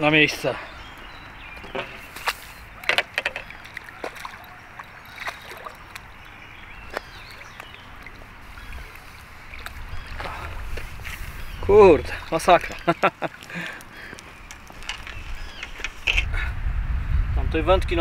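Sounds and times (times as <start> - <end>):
water sloshing at bank: 1.6 - 16.2
sharp clicks and knocks: 2.8 - 3.5.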